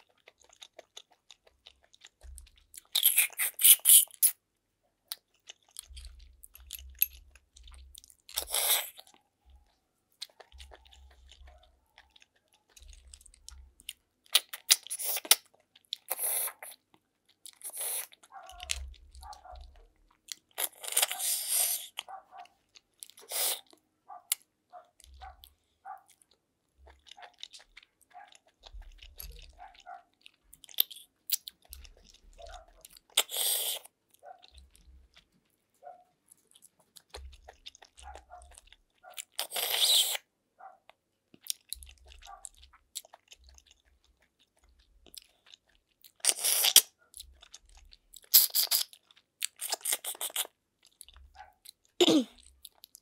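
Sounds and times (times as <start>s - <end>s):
chewing: 0.0s - 53.0s.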